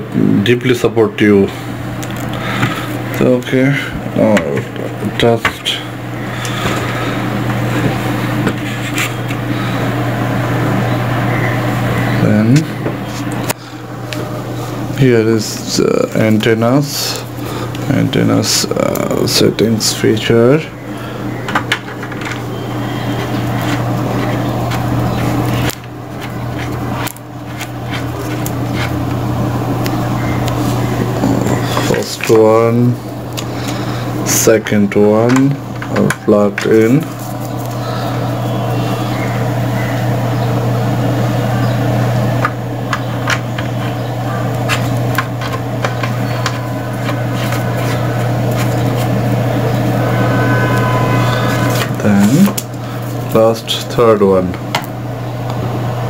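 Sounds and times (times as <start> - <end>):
steady low hum: 0.0 - 56.0
antenna clicking and rubbing: 21.5 - 34.3, 42.4 - 50.1.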